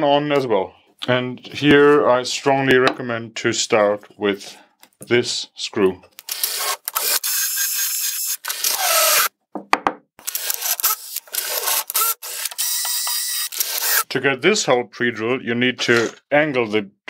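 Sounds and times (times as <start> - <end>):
cordless drill driving screws: 6.2 - 9.3, 10.2 - 14.0.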